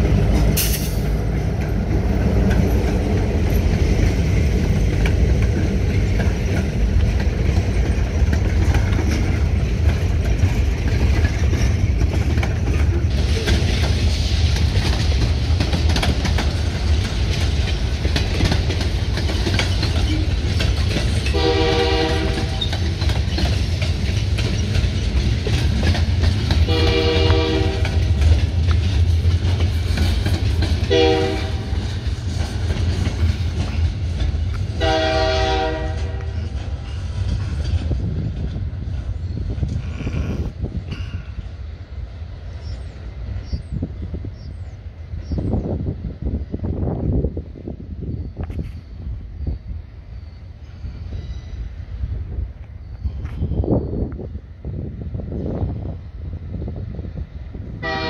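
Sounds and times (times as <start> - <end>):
freight train wheels rumbling: 0.0 - 58.0
locomotive air horn blasts: 21.3 - 22.6, 26.7 - 28.0, 30.9 - 31.8, 34.8 - 36.4, 57.8 - 58.0.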